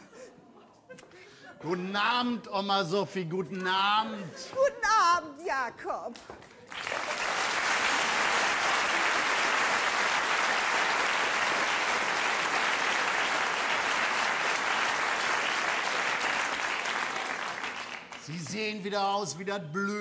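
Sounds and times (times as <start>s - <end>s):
audience applauding: 6.4s - 18.6s.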